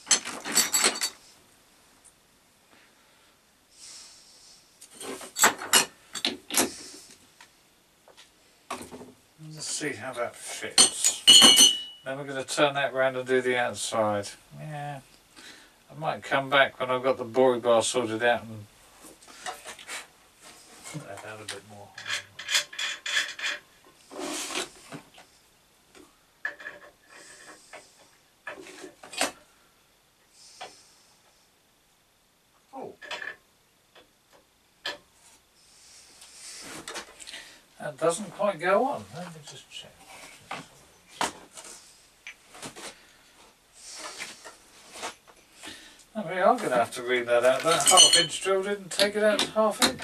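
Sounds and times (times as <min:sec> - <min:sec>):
metal scraping and clinking: 0:00.0 - 0:01.2, 0:10.7 - 0:12.1, 0:21.9 - 0:24.9, 0:46.6 - 0:48.5
metal scrape: 0:22.0 - 0:24.9.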